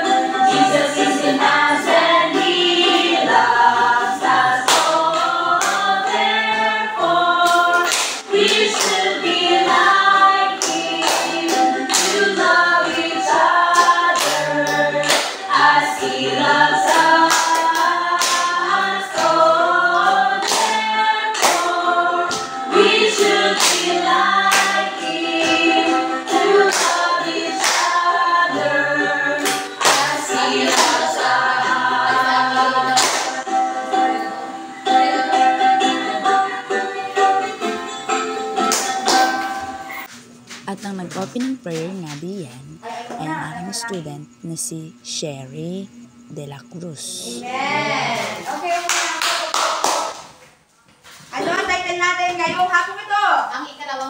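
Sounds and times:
young voices singing a hymn: 0:00.0 - 0:40.0, 0:47.0 - 0:48.6
hand claps: 0:04.6 - 0:05.0, 0:05.6 - 0:05.9, 0:07.4 - 0:09.3, 0:10.6 - 0:12.4, 0:13.7 - 0:15.5, 0:16.8 - 0:18.6, 0:20.4 - 0:21.7, 0:23.2 - 0:25.6, 0:26.3 - 0:28.1, 0:29.4 - 0:31.3, 0:32.9 - 0:33.5, 0:38.6 - 0:42.2, 0:48.8 - 0:50.5.

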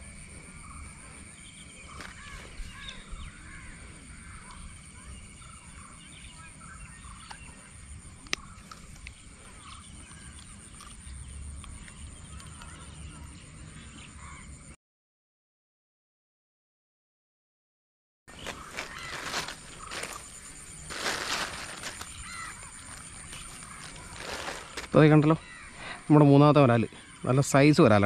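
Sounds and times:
birds chirping: 0:00.0 - 0:14.7, 0:18.3 - 0:28.0.

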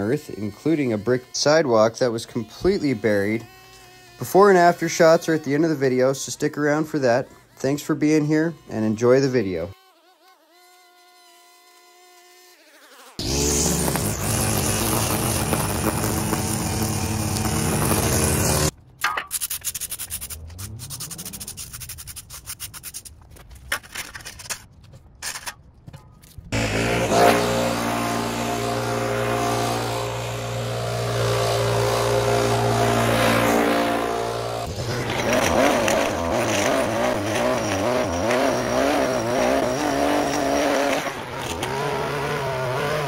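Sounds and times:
small gasoline engine running: 0:13.2 - 0:18.7, 0:26.6 - 0:43.0.

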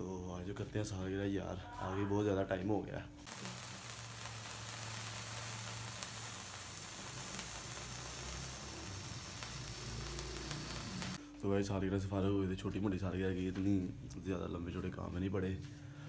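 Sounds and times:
faint crackles: 0:03.2 - 0:11.2
sparkler candle fizzing: 0:03.2 - 0:11.2.

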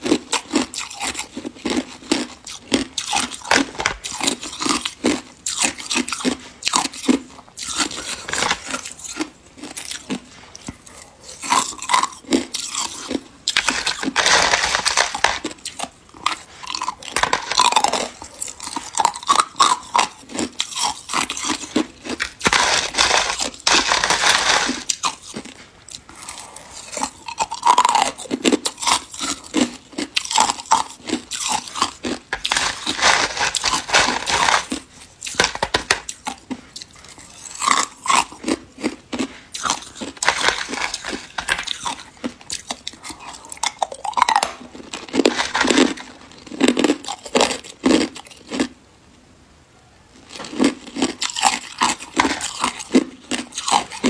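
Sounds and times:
ice being chewed: 0:00.0 - 0:48.7, 0:50.2 - 0:54.0.

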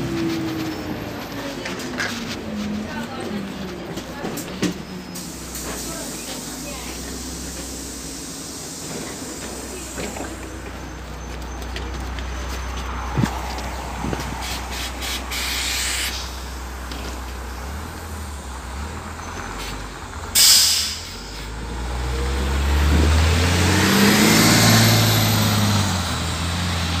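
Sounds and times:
bus engine revving: 0:00.0 - 0:27.0
compressed air hiss: 0:05.2 - 0:10.6, 0:14.4 - 0:16.7, 0:20.4 - 0:21.5.

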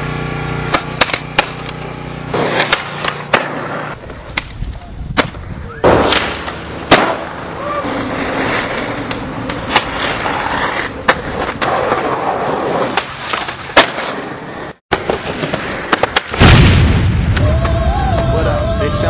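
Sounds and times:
skateboard grinding along curb: 0:00.0 - 0:16.3
skateboard wheels rolling on concrete: 0:00.0 - 0:16.4
skateboard clacks popping and landing: 0:00.7 - 0:01.8, 0:12.8 - 0:14.2.

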